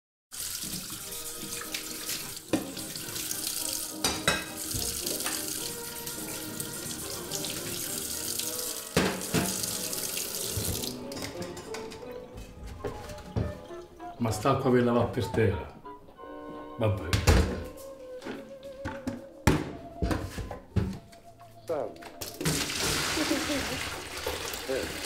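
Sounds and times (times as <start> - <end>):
dishware clinking and knocking: 4.0 - 5.5, 9.0 - 9.6, 11.1 - 13.7
tap running into a steel sink: 8.9 - 9.7.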